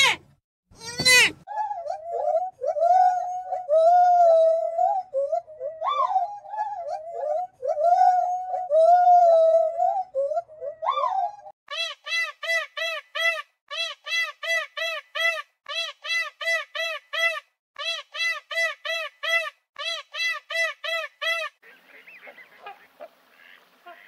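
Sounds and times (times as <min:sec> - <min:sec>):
faint hiss: 0:21.6 - 0:24.0.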